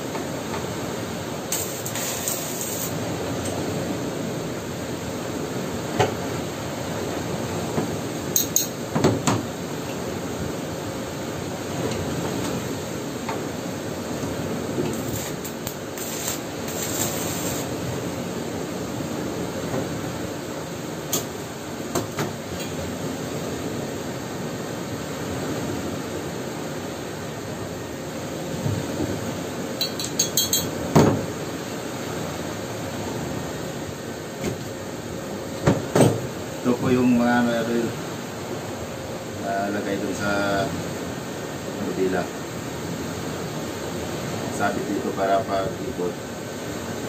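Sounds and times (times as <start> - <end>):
steady rushing noise: 10.2 - 20.8
metal clinking and tapping: 29.8 - 30.7.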